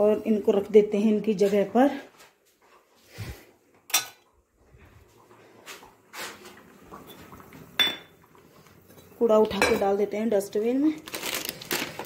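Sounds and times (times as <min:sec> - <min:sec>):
dishes and utensils clattering: 0:03.9 - 0:04.3, 0:07.0 - 0:08.2.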